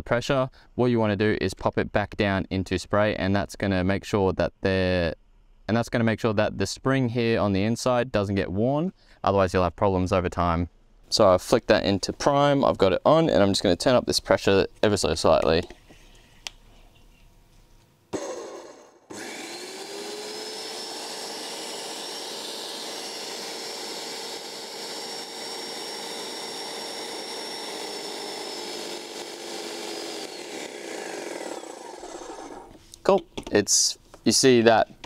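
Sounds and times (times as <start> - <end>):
paint sprayer motor and pump running: 18.2 - 32.8.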